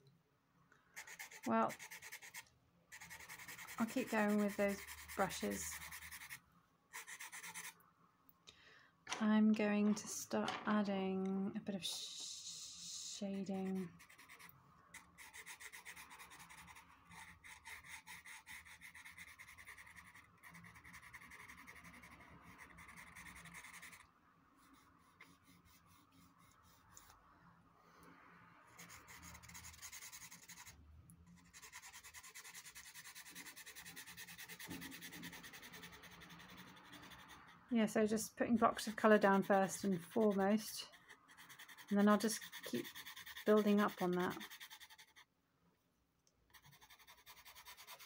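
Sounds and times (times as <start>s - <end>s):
pencil scratching on rough paper: 1.0s - 7.8s, 13.3s - 24.0s, 24.6s - 27.2s, 28.7s - 30.8s, 31.4s - 37.7s, 38.5s - 45.3s, 46.5s - 48.0s.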